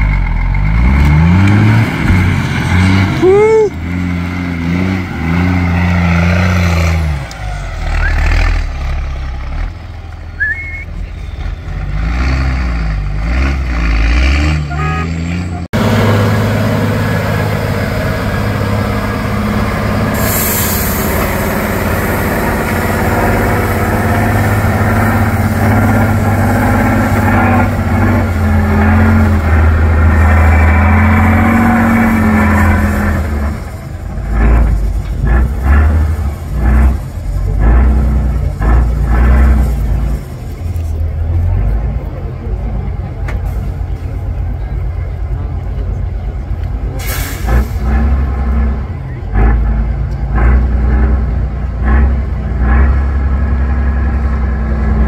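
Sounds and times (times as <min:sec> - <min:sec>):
heavy truck engine: 0:00.0 - 0:55.0
truck diesel engines under load: 0:00.0 - 0:55.0.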